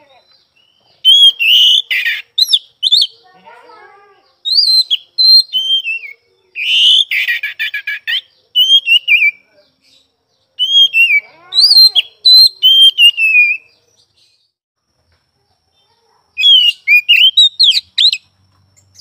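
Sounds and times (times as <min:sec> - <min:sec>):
bird singing whistled phrases: 0:00.2 - 0:03.2, 0:04.4 - 0:09.5, 0:10.6 - 0:13.8, 0:16.4 - 0:18.3.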